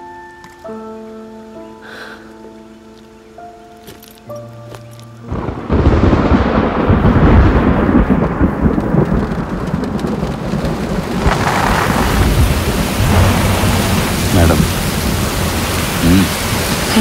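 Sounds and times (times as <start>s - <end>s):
deep thunder rumble: 5.3s - 17.0s
heavy rain downpour: 5.3s - 17.0s.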